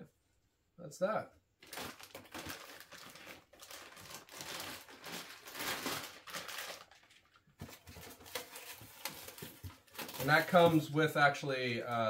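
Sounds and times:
plastic wrapping crinkling: 1.6s - 11.0s.

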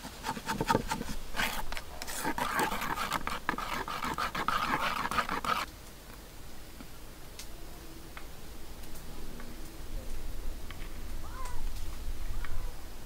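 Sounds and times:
tongs scraping batter in bowl: 0.0s - 5.7s.

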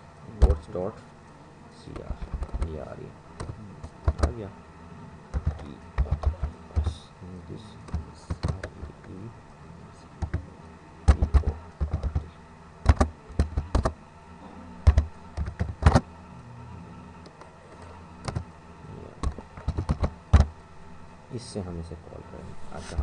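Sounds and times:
faint low hum: 0.0s - 23.0s
keyboard key clicks: 3.4s - 4.4s, 5.3s - 7.0s, 7.9s - 8.9s, 11.1s - 14.0s, 14.8s - 16.0s, 18.2s - 18.5s, 19.2s - 20.5s.

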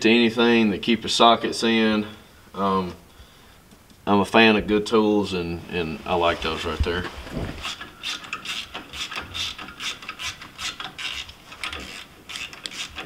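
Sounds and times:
hand tools clicking and scraping metal: 7.6s - 13.0s.

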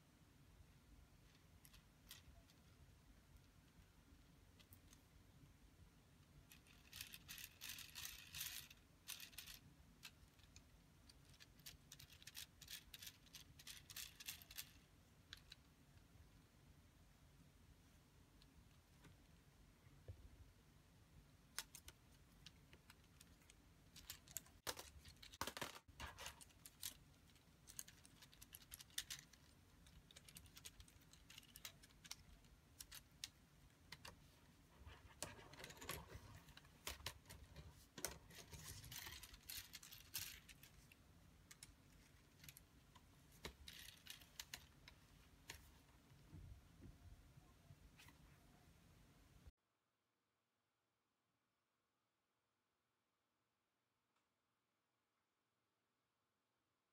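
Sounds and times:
plastic parts clicking and rattling: 6.4s - 15.7s, 21.5s - 45.8s.

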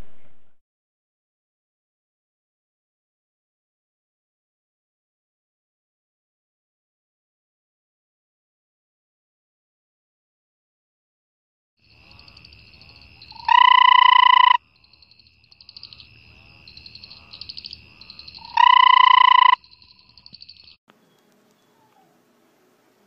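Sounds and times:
frog calling: 11.8s - 20.8s
chorus of high trilling calls: 12.1s - 15.0s, 16.7s - 20.8s.

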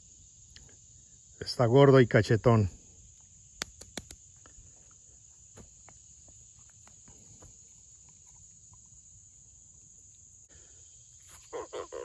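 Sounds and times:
footsteps on dirt: 4.8s - 7.7s.

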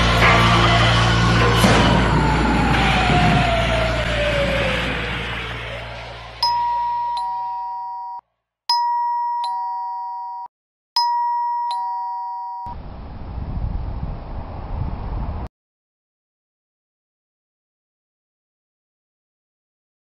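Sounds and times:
two-tone doorbell chime: 6.4s - 12.7s.

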